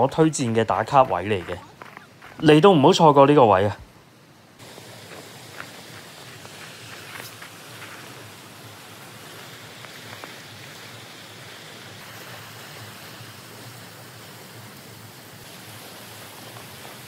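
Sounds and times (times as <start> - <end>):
river rushing over rapids: 4.6 - 17.0.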